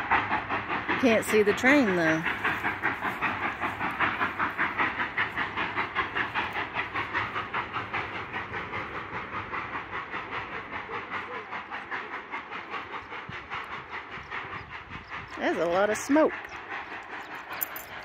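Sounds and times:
steam locomotive exhaust chuffing: 0:00.0 - 0:18.0.

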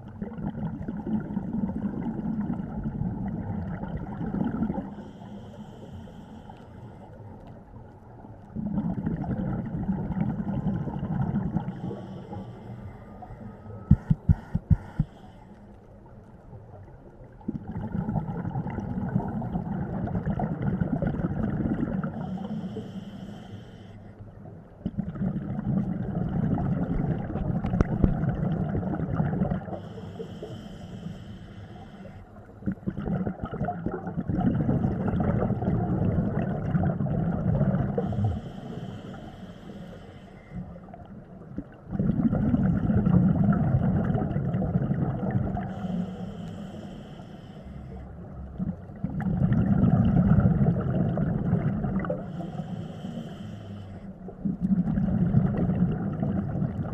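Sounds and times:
bubbling exhale underwater: 0:00.0 - 0:05.8, 0:08.5 - 0:12.5, 0:17.3 - 0:22.8, 0:24.8 - 0:30.7, 0:32.6 - 0:39.4, 0:40.5 - 0:46.8, 0:48.5 - 0:53.2, 0:54.3 - 0:56.9
hissing regulator inhale: 0:04.9 - 0:07.2, 0:11.7 - 0:15.7, 0:22.1 - 0:24.2, 0:29.6 - 0:32.6, 0:37.8 - 0:40.8, 0:45.5 - 0:48.2, 0:52.1 - 0:54.3.

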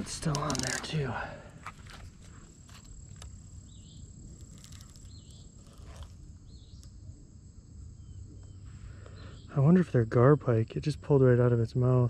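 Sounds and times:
high insect trill: 0:00.0 - 0:12.0.

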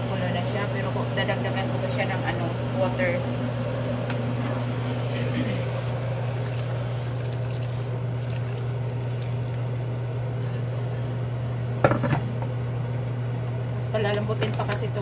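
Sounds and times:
steady low hum: 0:00.0 - 0:15.0
soup boiling in a pot: 0:05.3 - 0:11.8.

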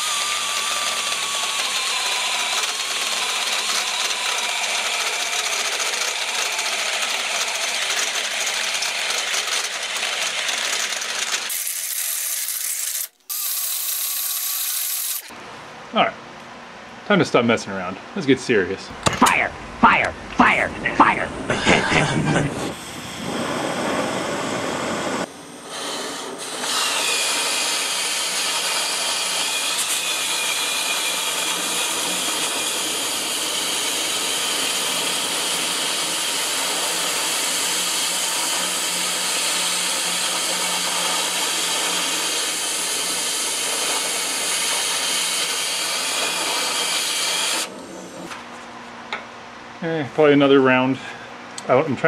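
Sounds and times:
cutting torch hissing: 0:21.6 - 0:48.3.

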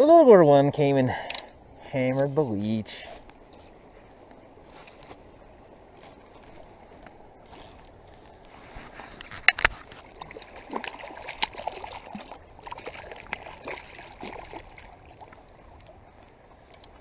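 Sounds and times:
fish splashing at water surface: 0:09.8 - 0:15.4
sharp water slaps: 0:10.2 - 0:15.0.

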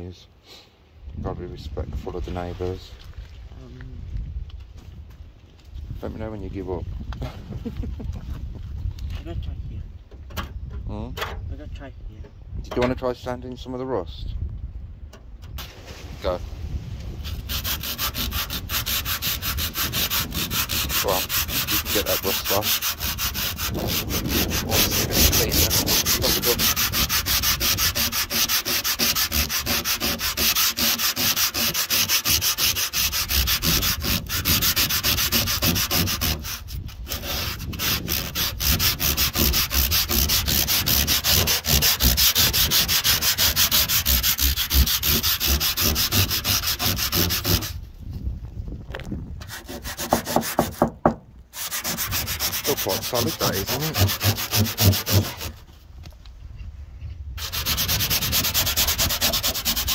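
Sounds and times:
sandpaper rubbing on metal: 0:17.2 - 0:47.8, 0:49.4 - 0:50.9, 0:51.5 - 0:55.6, 0:57.4 - 0:59.9.

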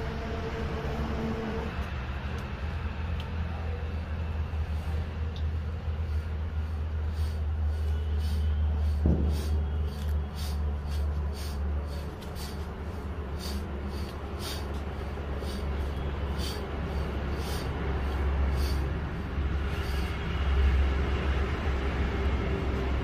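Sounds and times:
steady low rumble: 0:00.0 - 0:23.0.

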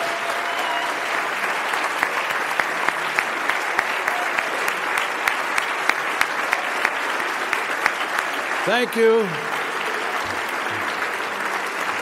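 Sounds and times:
audience applauding: 0:00.0 - 0:12.0
nearby hands clapping loudly: 0:00.0 - 0:12.0.

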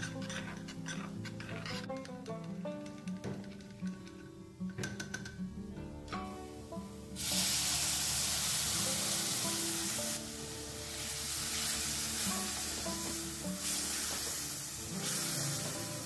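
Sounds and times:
wooden spatula stirring: 0:00.0 - 0:04.3
paste sizzling in hot pan: 0:06.6 - 0:16.0.

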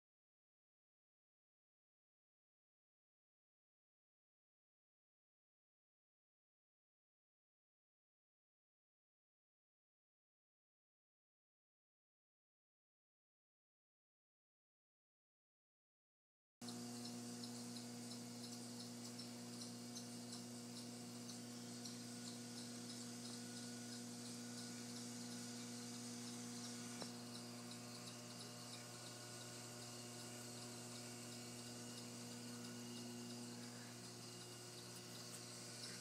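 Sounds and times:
steady low hum with tones: 0:16.6 - 0:36.0.

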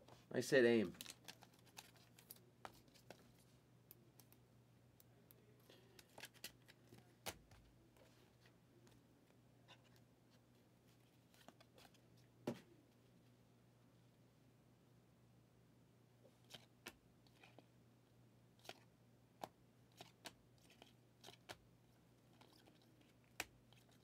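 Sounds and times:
trading cards clicking and scraping: 0:00.9 - 0:03.5, 0:05.6 - 0:08.1, 0:18.6 - 0:21.6.

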